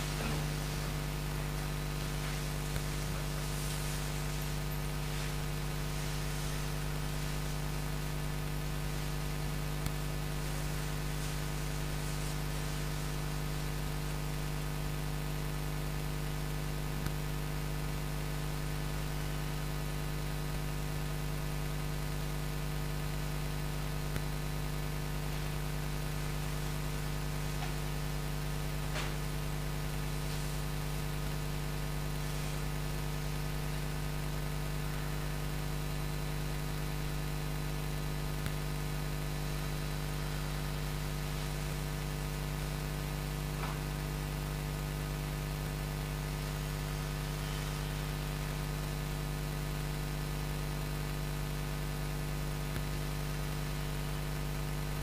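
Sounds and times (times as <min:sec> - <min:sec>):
faint hiss: 0:00.0 - 0:14.6, 0:30.1 - 0:35.3, 0:39.3 - 0:48.6
steady low electrical hum: 0:00.0 - 0:55.0.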